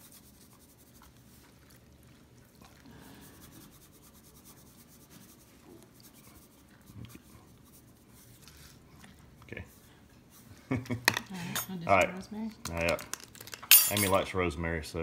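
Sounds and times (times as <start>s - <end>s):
hands rubbing raw chicken skin: 0.0s - 10.7s.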